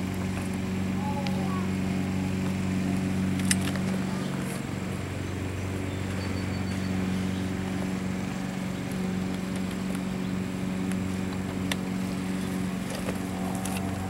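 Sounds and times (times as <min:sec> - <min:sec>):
motor humming: 0:00.0 - 0:14.0.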